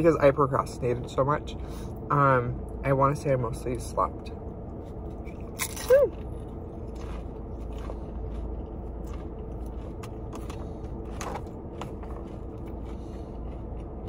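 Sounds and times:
car interior hum: 0.0s - 14.0s
person chewing food: 4.7s - 14.0s.

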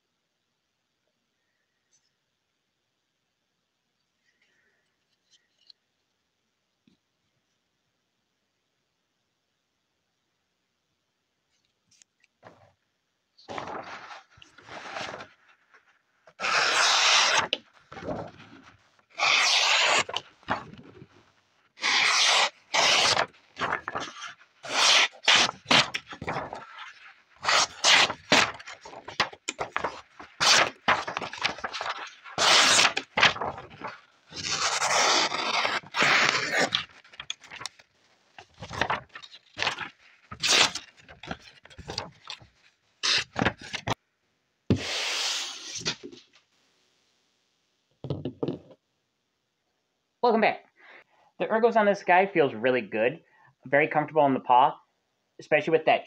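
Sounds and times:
paper rustling: 13.4s - 44.0s
knife blade slicing paper: 16.4s - 17.6s, 19.2s - 20.7s, 21.8s - 37.8s, 38.5s - 42.4s, 43.0s - 43.9s.

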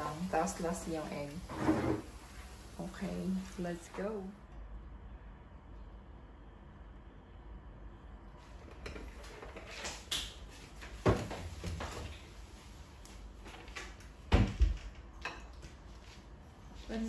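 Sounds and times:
kitchen knocks and thumps: 11.0s - 12.1s.

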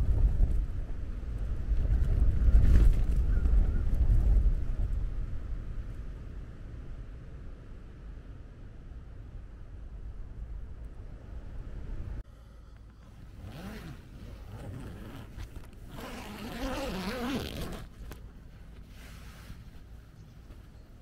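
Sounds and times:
low wind rumble: 0.0s - 21.0s
zipper being pulled: 13.4s - 18.2s.

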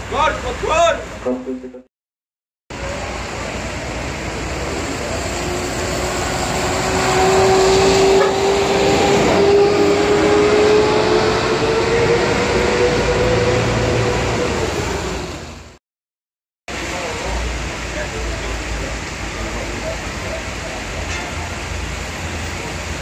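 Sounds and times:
bus engine whine: 0.0s - 1.9s, 2.7s - 15.8s, 16.7s - 23.0s
tyres hissing on wet road: 2.7s - 11.0s, 16.7s - 23.0s.

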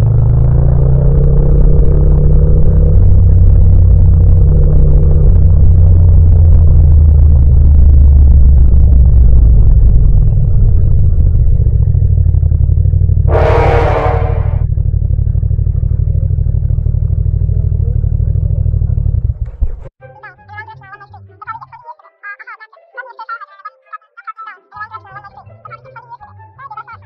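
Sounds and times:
motorcycle engine running: 0.0s - 19.9s
harsh burst of noise: 13.3s - 14.7s.

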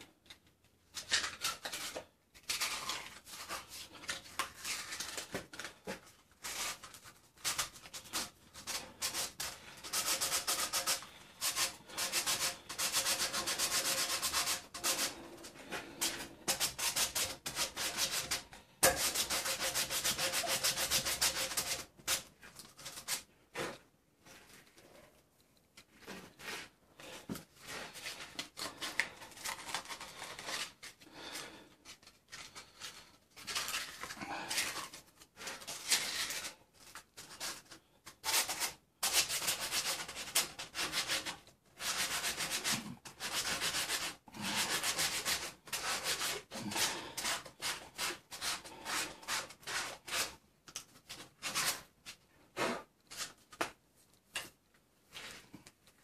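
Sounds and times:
hand sanding metal: 8.1s - 22.3s.

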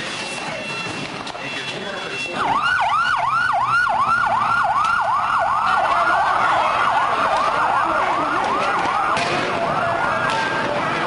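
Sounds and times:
second siren: 0.1s - 11.0s
siren yelping: 2.2s - 11.0s.

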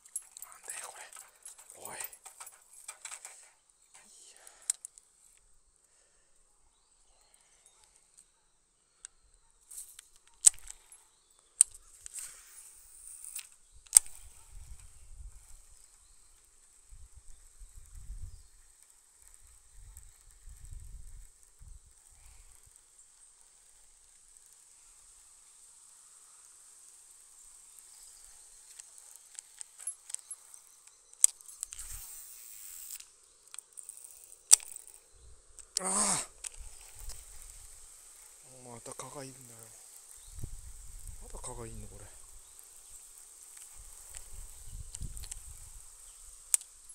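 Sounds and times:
sharp handling clicks: 0.0s - 5.1s, 9.0s - 12.4s, 28.6s - 40.2s
faint high insect buzz: 0.0s - 46.9s
hissing rustle: 0.0s - 46.9s.

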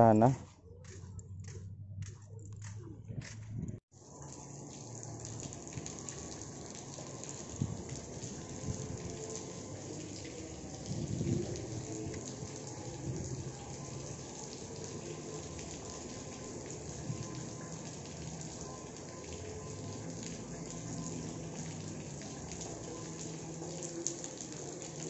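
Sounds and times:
rain falling on river water: 4.0s - 25.0s.

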